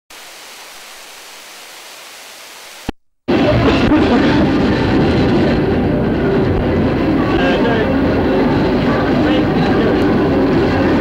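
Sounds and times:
videotape hiss: 0.1 - 5.3
fairground noise with music: 3.3 - 11.0.

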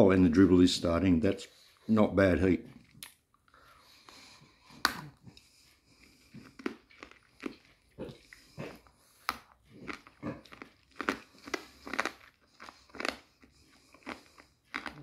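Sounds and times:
hard candy crunching in mouth: 4.8 - 15.0.

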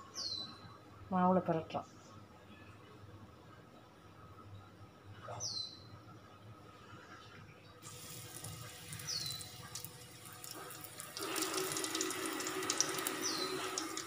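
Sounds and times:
bird chirping: 0.0 - 0.8, 8.9 - 9.7, 13.2 - 13.8
food deep-frying in oil: 7.8 - 14.0.

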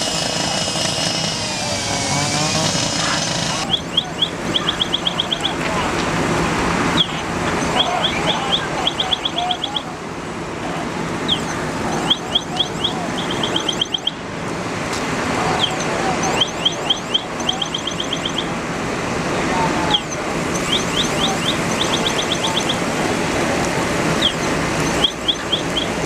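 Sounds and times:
fire burning with rushing noise: 0.0 - 26.0
electronic alarm chirping: 1.9 - 5.7, 6.9 - 9.9, 11.3 - 14.2, 15.6 - 18.6, 19.9 - 22.9, 24.1 - 26.0.

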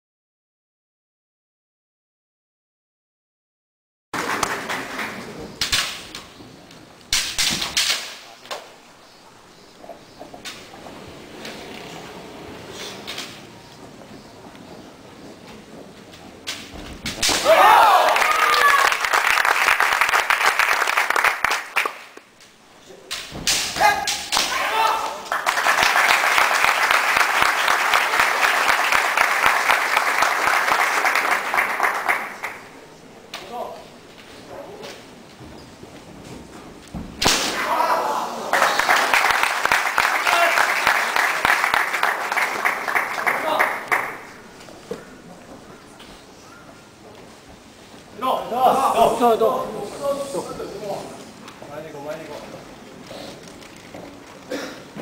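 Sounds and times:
audience clapping: 4.2 - 5.6, 17.8 - 22.3, 25.0 - 32.8, 38.4 - 44.8
sharp close claps: 4.2 - 6.3, 16.5 - 22.3, 38.5 - 44.4
bamboo swords clacking: 5.6 - 6.3, 7.0 - 8.8, 16.4 - 17.6, 23.1 - 24.7
sharp kiai shouts: 17.3 - 18.9, 23.6 - 25.3, 37.5 - 38.5.

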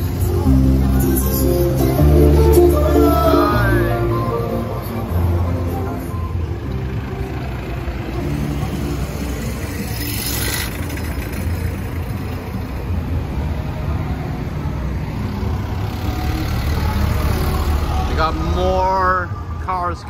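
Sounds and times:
music: 0.0 - 10.8
truck engines rumbling: 0.0 - 20.0.

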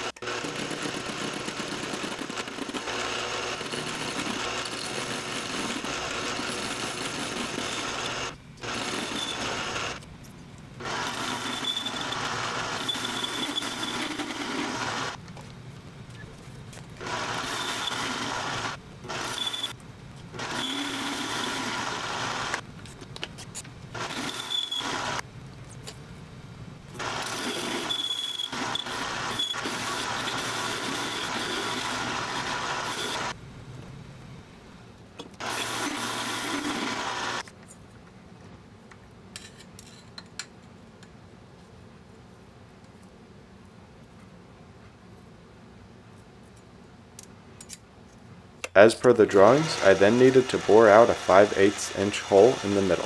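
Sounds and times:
lathe tool cutting steel: 2.3 - 10.0, 10.8 - 15.2, 17.0 - 19.7, 20.4 - 22.6, 24.0 - 25.2, 27.0 - 33.4, 35.4 - 37.4, 49.0 - 53.0
lathe motor running: 17.0 - 19.7, 20.4 - 22.6, 27.0 - 33.4, 49.4 - 53.0.

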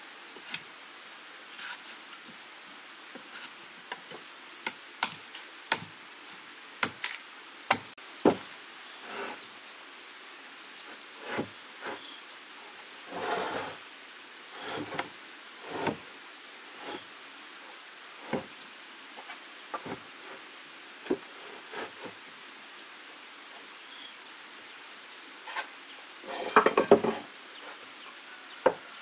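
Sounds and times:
rustling or scraping: 1.5 - 2.3, 3.2 - 3.6, 8.3 - 9.5, 10.9 - 13.8, 14.5 - 16.1, 16.7 - 17.2, 19.2 - 22.2, 25.4 - 27.8
knocks on wood: 8.2 - 8.4.

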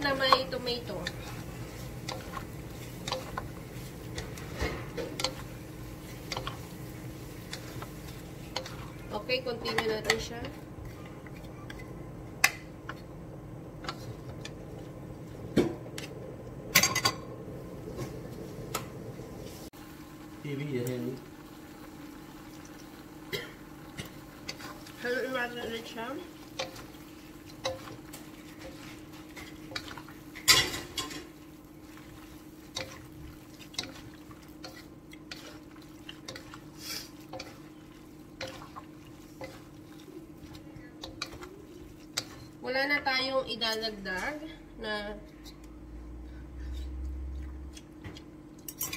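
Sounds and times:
spatulas scraping and knocking wok: 0.0 - 13.1, 13.8 - 17.2, 24.0 - 44.6
steady low hum: 0.0 - 48.9.

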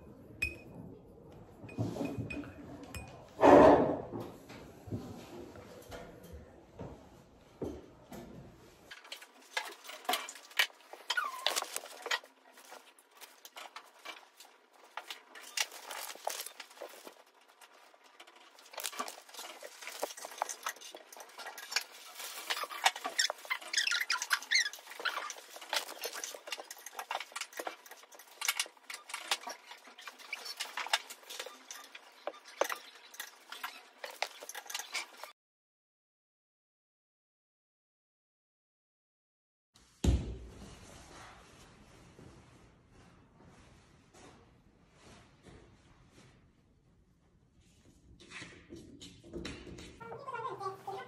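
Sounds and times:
brief squeaks: 11.0 - 11.9.

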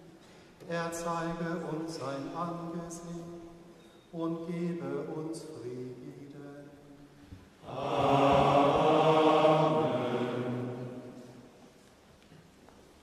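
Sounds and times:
choir chanting liturgical response: 7.6 - 11.6.

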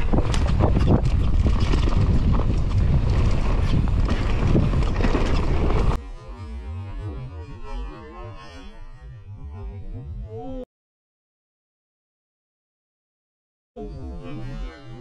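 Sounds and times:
bike rattling and knocking: 0.0 - 6.0
bike tyre noise: 0.0 - 6.0
wind rushing over microphone: 0.0 - 6.0.

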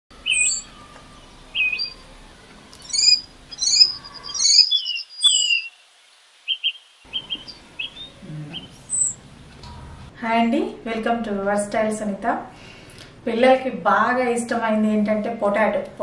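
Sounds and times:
birds chirping: 0.1 - 10.1.

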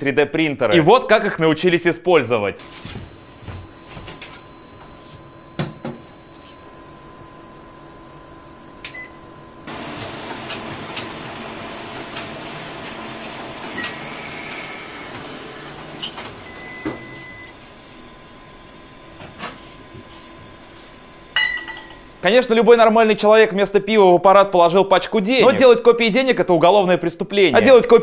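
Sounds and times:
photocopier whirring: 2.6 - 21.4.

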